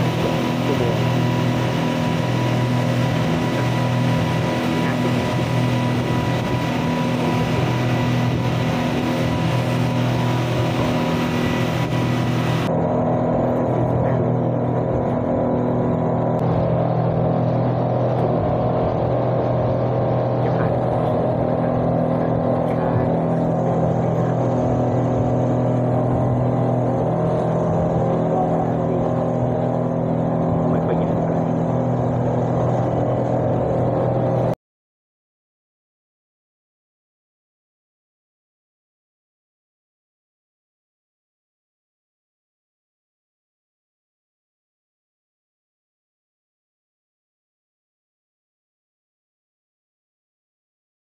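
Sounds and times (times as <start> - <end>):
speedboat engine droning: 0.0 - 34.6.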